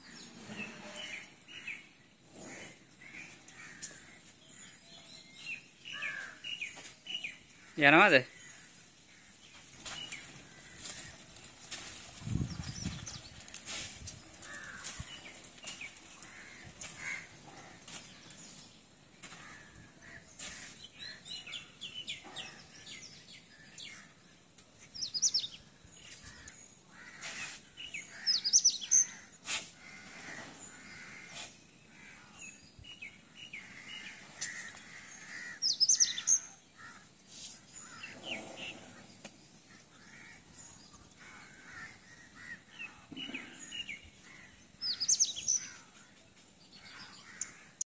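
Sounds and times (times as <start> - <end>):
birds chirping: 0.0 - 47.8
faint outdoor background: 0.0 - 47.9.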